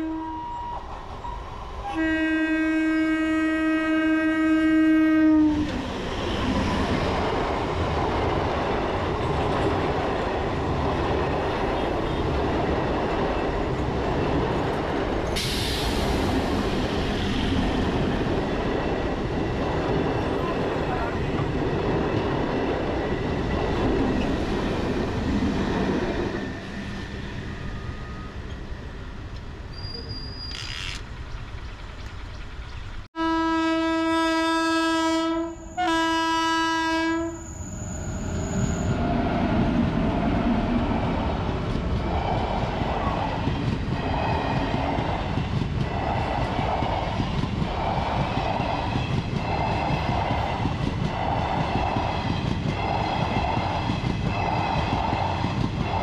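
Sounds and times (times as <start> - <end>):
locomotive horn blasts: 0.0 - 0.8, 1.9 - 5.8, 33.2 - 37.5
train passing: 0.0 - 56.0
train wheel clatter: 5.6 - 20.5, 41.4 - 56.0.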